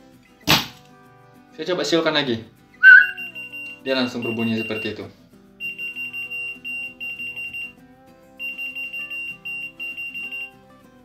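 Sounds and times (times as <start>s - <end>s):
person whistling: 2.8s - 4.9s
key finder beeping: 2.8s - 5.0s, 5.6s - 7.7s, 8.4s - 10.5s.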